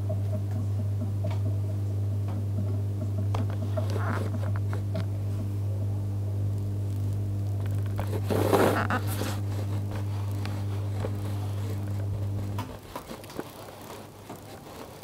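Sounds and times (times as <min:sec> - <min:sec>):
low electrical hum: 0:00.0 - 0:15.0
loud scraping rustle: 0:07.8 - 0:15.0.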